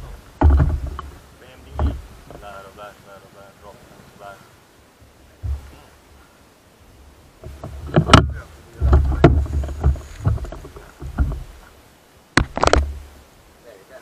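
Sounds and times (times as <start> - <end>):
handling knocks and clicks: 0.0 - 2.5, 7.4 - 11.8, 12.4 - 13.0
wind buffeting microphone: 0.0 - 2.9, 6.8 - 11.9.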